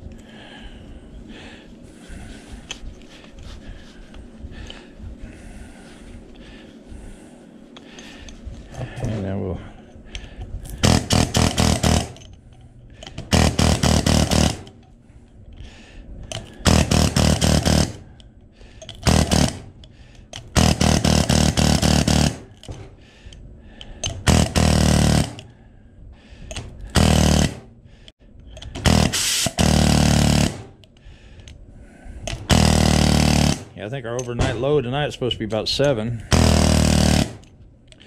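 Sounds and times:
air hammer chiseling metal: 0:10.7 - 0:14.9, 0:16.3 - 0:18.1, 0:18.8 - 0:22.9, 0:24.0 - 0:25.5, 0:26.5 - 0:27.7, 0:28.5 - 0:30.9, 0:32.3 - 0:34.7, 0:35.7 - 0:37.5.

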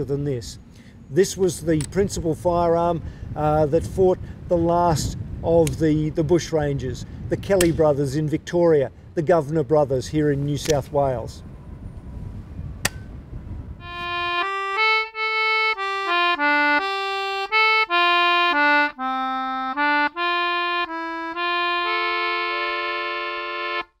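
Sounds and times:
faint outdoor noise: 0:00.0 - 0:17.5
sharp click: 0:07.6 - 0:07.8, 0:10.6 - 0:10.8, 0:12.8 - 0:13.1
simple tune of held notes: 0:13.8 - 0:24.0.

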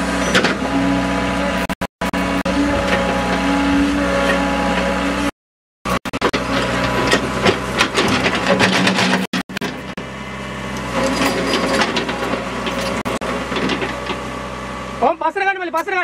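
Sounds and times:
excavator engine running: 0:00.0 - 0:16.0
excavator bucket clanking: 0:06.3 - 0:10.0, 0:11.0 - 0:14.2.

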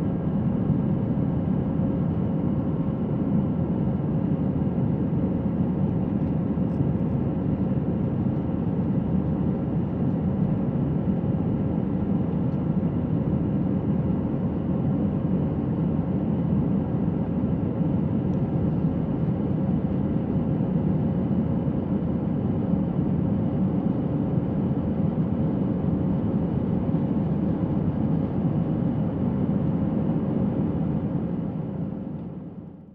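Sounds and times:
aircraft engine and airflow noise: 0:00.0 - 0:32.9.

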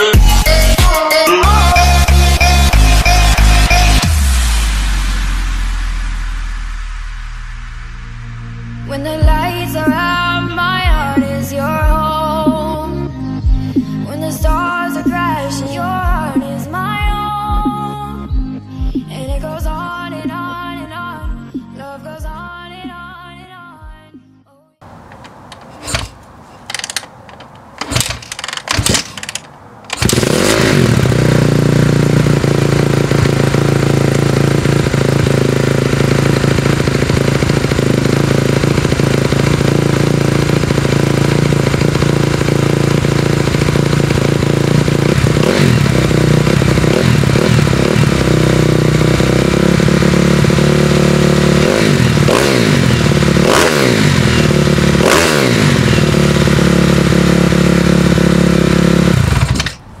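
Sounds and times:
engine revving on throttle blips: 0:01.4 - 0:12.8, 0:24.8 - 0:59.9
motorcycle engine idling: 0:24.8 - 0:59.8.

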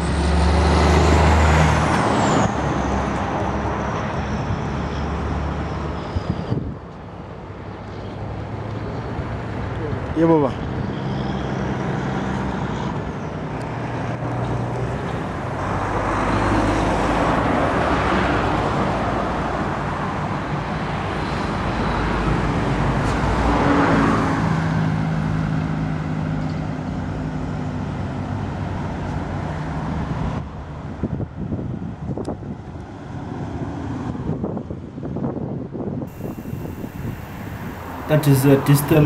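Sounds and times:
road traffic passing: 0:00.0 - 0:19.9, 0:36.1 - 0:39.0.

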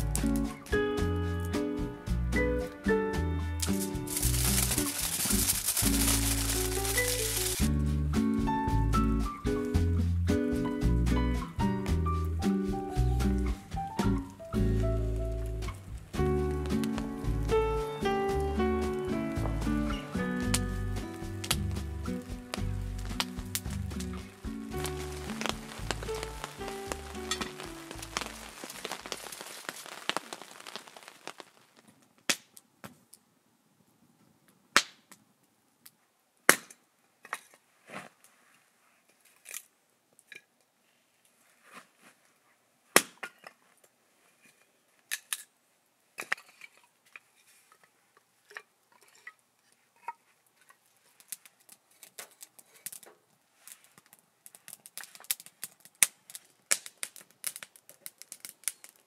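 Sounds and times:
wood fire crackling and popping: 0:00.0 - 0:01.7, 0:03.6 - 0:12.4, 0:13.0 - 0:33.0, 0:50.6 - 0:59.0
background music: 0:00.0 - 0:28.7.

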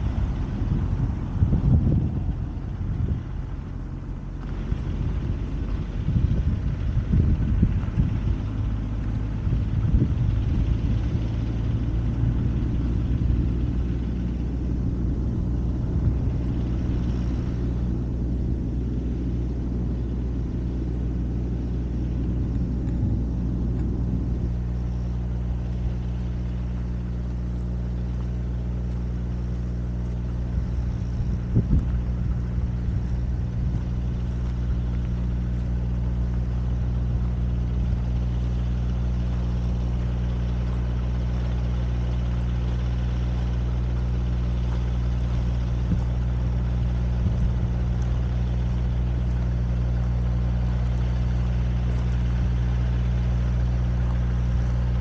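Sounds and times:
engine idling hum: 0:00.0 - 0:55.0
rough low rumble: 0:00.0 - 0:55.0.

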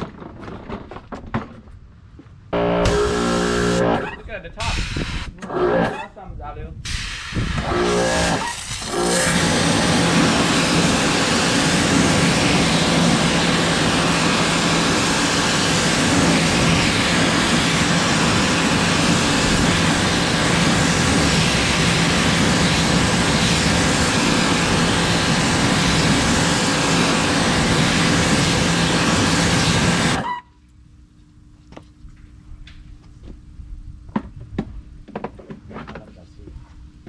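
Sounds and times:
pressure washer spraying: 0:02.6 - 0:06.0, 0:06.9 - 0:30.4.

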